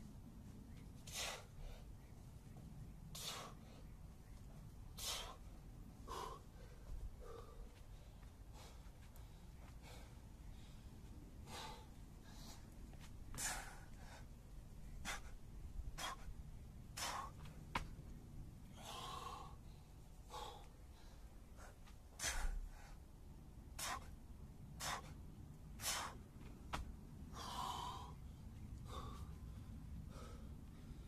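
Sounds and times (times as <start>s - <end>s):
man breathing hard: 1.0s - 2.0s, 3.1s - 3.9s, 4.9s - 17.5s, 18.7s - 23.1s, 23.7s - 24.2s, 24.8s - 25.2s, 25.8s - 26.3s, 27.3s - 31.0s.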